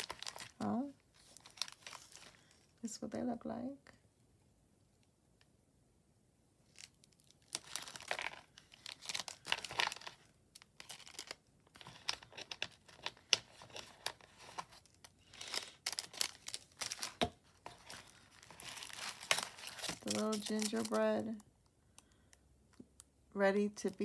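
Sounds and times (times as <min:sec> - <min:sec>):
paper and plastic rustling: 0:00.0 - 0:02.7, 0:06.7 - 0:21.4.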